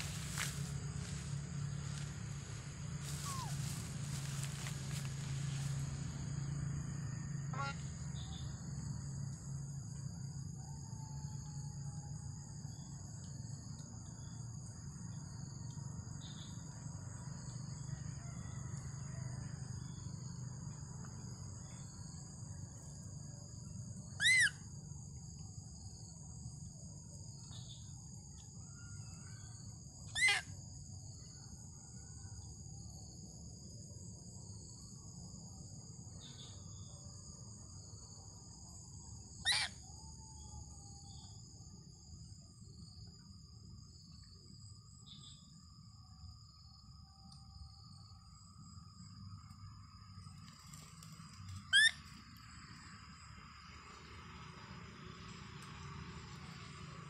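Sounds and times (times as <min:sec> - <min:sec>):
high-pitched insect drone: 0:00.0 - 0:20.5, 0:21.1 - 0:57.0
high-pitched arching calls: 0:03.0 - 0:04.7, 0:24.2 - 0:24.6, 0:30.1 - 0:30.5, 0:39.4 - 0:39.8, 0:51.6 - 0:52.1.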